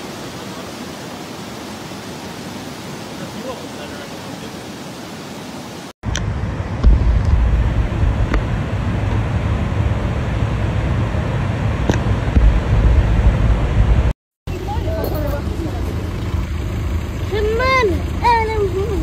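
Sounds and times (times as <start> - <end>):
rushing water on flooded street: 0.0 - 6.0, 14.0 - 19.0
fire engine rumbling through water: 6.0 - 19.0.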